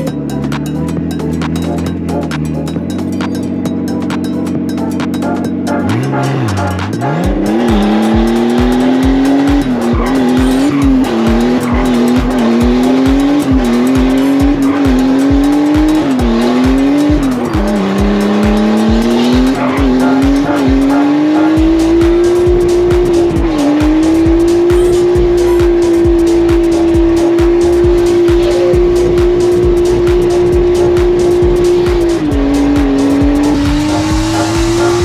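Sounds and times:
car engine revving: 0.0 - 35.0
music with thumping beat: 0.0 - 35.0.

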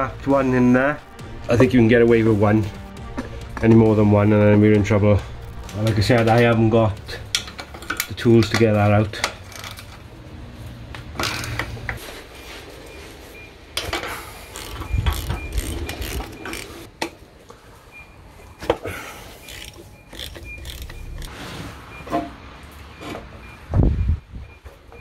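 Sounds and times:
socket ratchet clicking: 19.5 - 21.3.

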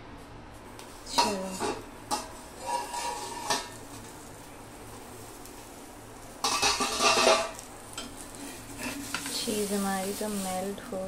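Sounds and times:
metal plate clanking and scraping: 1.2 - 3.8, 6.4 - 7.6.

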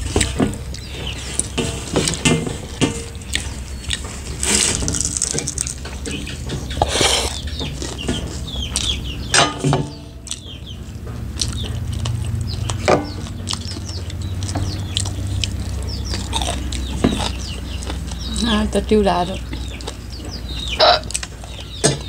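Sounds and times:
chicken clucking: 0.0 - 22.0
steady low hum: 0.0 - 22.0
chewing and lip-smacking: 3.2 - 9.2, 10.2 - 18.4, 19.4 - 21.8.

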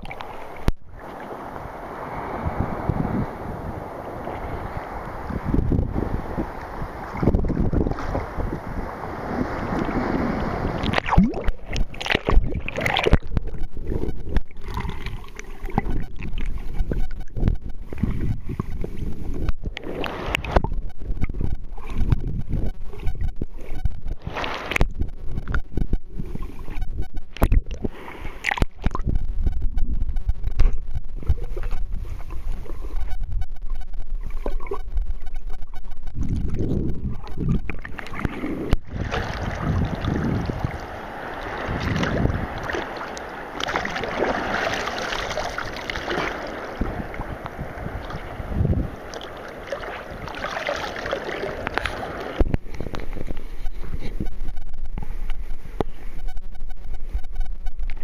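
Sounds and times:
water splashing: 0.0 - 2.8, 3.8 - 53.4
underwater rumble of moving water: 0.0 - 58.0
sharp underwater clicks and knocks: 10.8 - 26.1, 26.7 - 38.9, 51.6 - 58.0.

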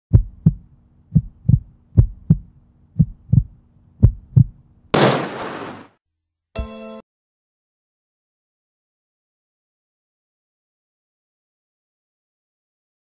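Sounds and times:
heartbeat-like thumps: 0.1 - 4.6.

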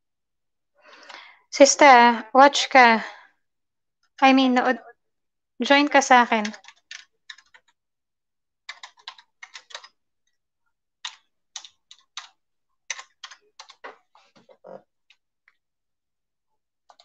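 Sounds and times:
typing on computer keyboard: 6.2 - 7.8, 8.7 - 10.0, 11.0 - 14.0.

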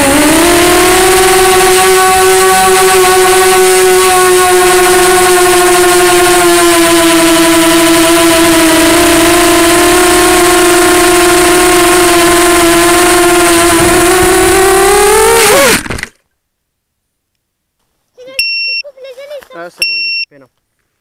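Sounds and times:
quadcopter motors whining: 0.0 - 16.1
quadcopter crashing: 0.0 - 16.2.

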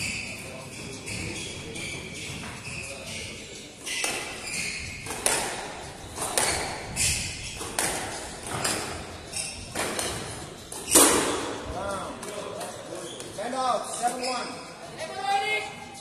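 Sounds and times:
squash ball cracking off rackets: 3.9 - 11.6.

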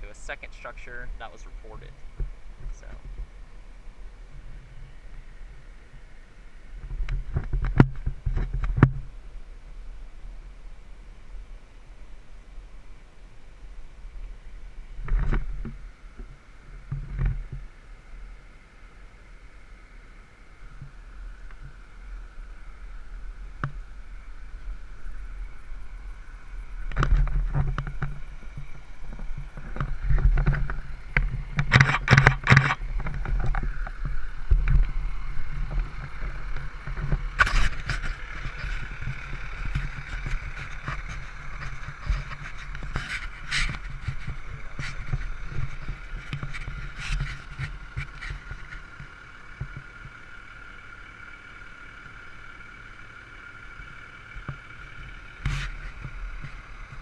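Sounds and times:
steady low rumble: 0.0 - 57.0
fingers rubbing microphone: 35.4 - 49.0, 55.4 - 57.0.

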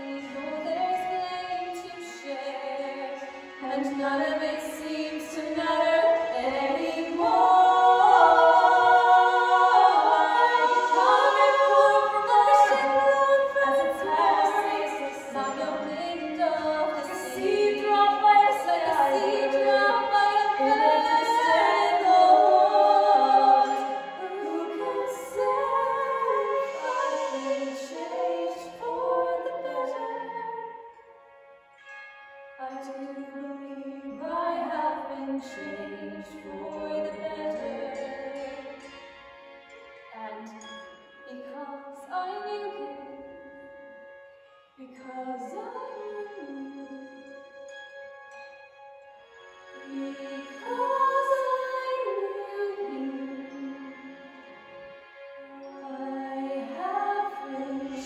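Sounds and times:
girls singing in harmony: 0.0 - 30.8, 32.6 - 38.8, 44.8 - 47.0, 49.8 - 54.1, 55.6 - 58.0.

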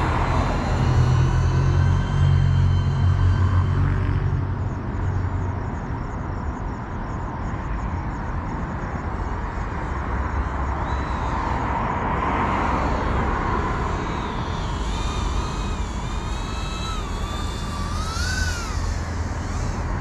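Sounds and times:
drone motors buzzing: 0.0 - 6.2, 8.8 - 20.0
outdoor rumble: 0.0 - 6.6, 8.6 - 20.0
wind noise on microphone: 0.0 - 20.0.

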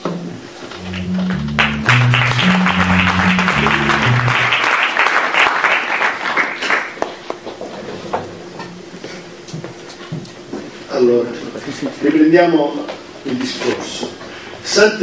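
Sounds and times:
low musical notes: 0.7 - 5.0
audience applauding: 0.8 - 7.3.

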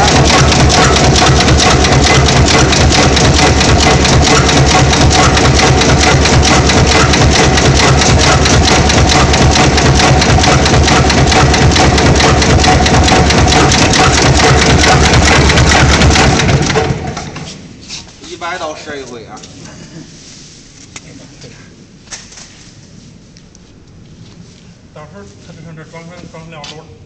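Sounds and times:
metal machine clattering: 0.0 - 17.4
low machine hum: 0.0 - 17.8.

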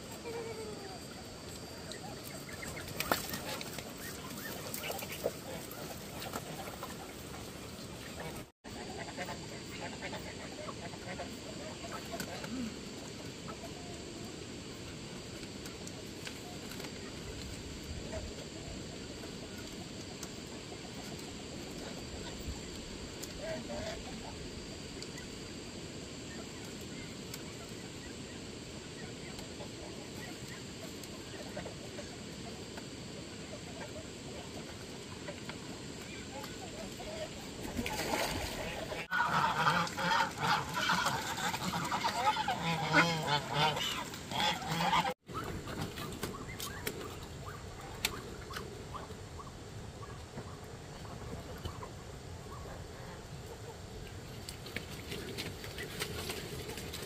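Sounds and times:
chickens clucking: 0.1 - 14.0, 26.5 - 57.0.

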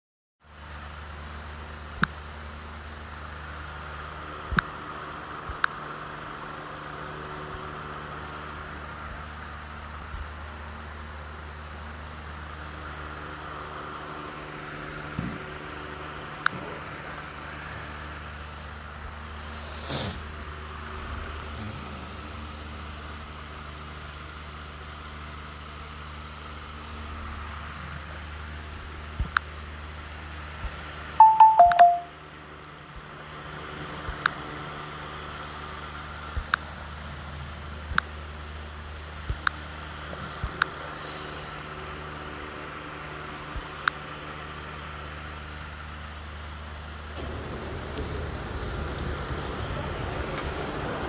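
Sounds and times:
low mechanical hum: 0.4 - 31.3, 32.0 - 51.0
hiss: 19.2 - 20.4, 40.9 - 41.6, 47.2 - 51.0
motor humming steadily: 20.2 - 31.0.

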